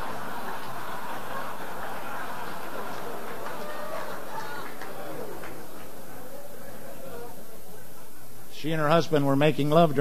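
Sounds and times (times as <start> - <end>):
audience laughing: 0.0 - 6.8.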